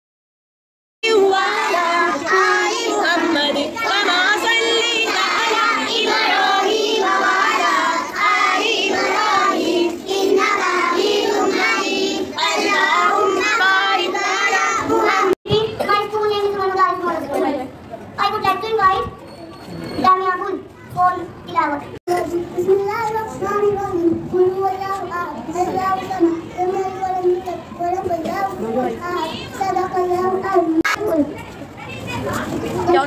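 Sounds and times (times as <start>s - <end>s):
young children singing: 1.0s - 15.4s.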